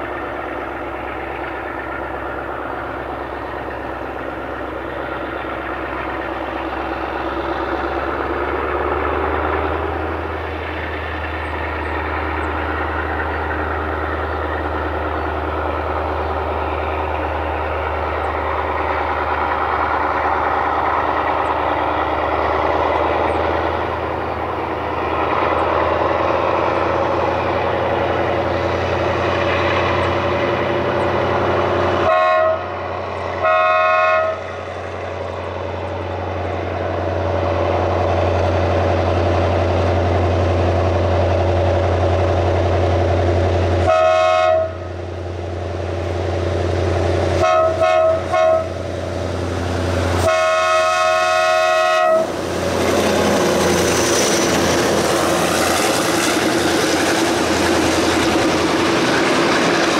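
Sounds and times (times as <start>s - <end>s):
locomotive engine drone: 0.0s - 59.9s
locomotive air horn blasts: 32.0s - 32.8s, 33.4s - 34.4s, 43.8s - 44.9s, 47.4s - 48.8s, 50.2s - 52.3s.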